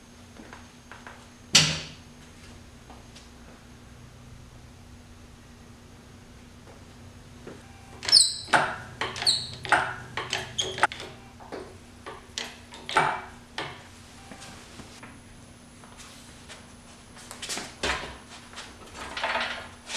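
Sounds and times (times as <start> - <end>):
hoist pump clanks and squeaks: 8.0 - 11.2.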